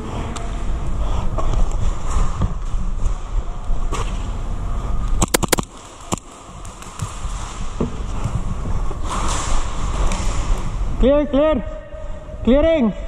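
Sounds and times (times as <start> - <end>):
airsoft gun shots: 5.3 - 5.6.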